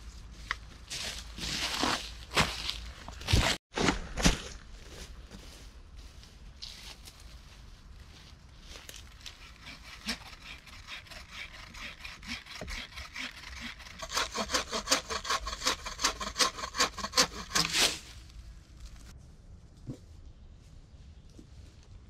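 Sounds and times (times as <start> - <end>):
frame saw cutting wood: 9.2 - 18.0.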